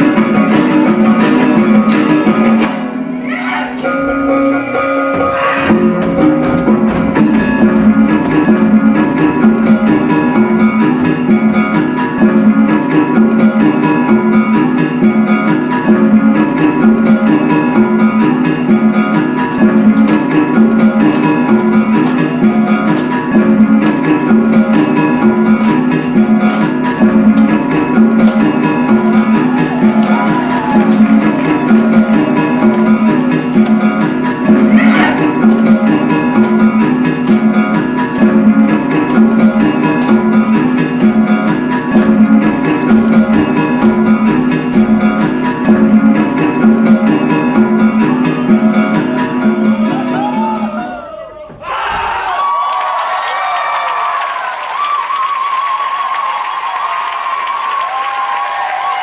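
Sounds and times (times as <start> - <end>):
plucked-string dance melody: 0.0 - 3.2, 3.8 - 50.2
plucked string riff: 3.8 - 12.2
sharp percussive beat: 3.9 - 11.6.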